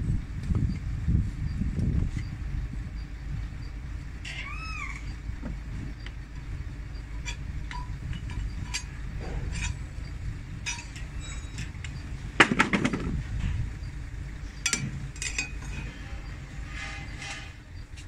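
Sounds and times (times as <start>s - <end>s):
low rumble: 0.0s - 18.0s
metal brake plates clanking: 4.2s - 17.8s
metal clatter: 6.3s - 13.9s, 14.6s - 17.7s.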